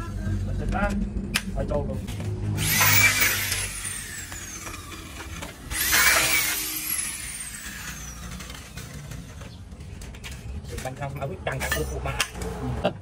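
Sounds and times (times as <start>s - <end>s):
power tool motor whining: 2.2s - 9.6s.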